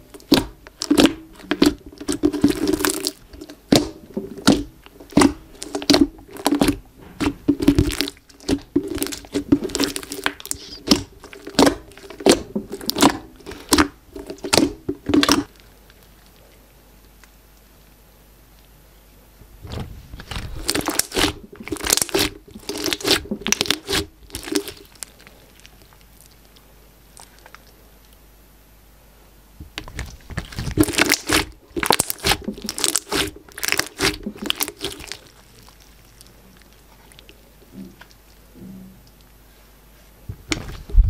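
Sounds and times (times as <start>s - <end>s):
slime crackling and popping: 0.1s - 16.4s, 19.6s - 28.2s, 29.8s - 37.4s.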